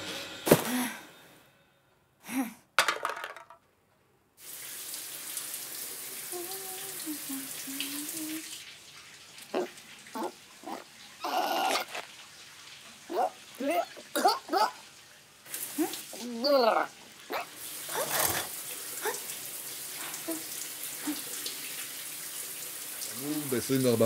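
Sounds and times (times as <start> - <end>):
shower running: 4.4 - 24.0
person humming: 6.3 - 8.5.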